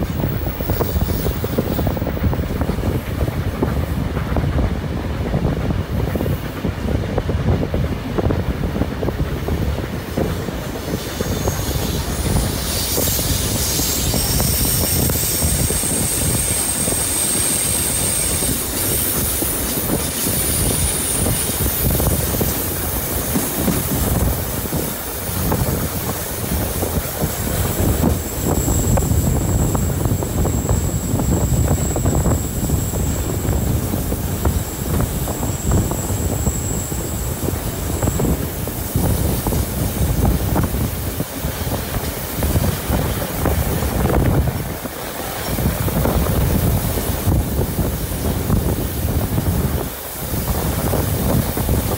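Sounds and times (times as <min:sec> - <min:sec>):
train wheels clattering over rails: 0:00.0 - 0:51.9
high-pitched wheel squeal: 0:11.1 - 0:22.4, 0:27.5 - 0:38.9.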